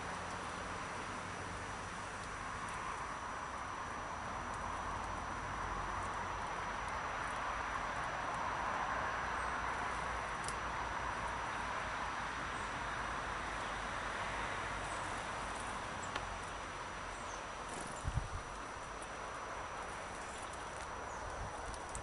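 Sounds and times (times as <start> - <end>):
outdoor background hiss: 0.0 - 22.0
small birds chirping: 14.8 - 22.0.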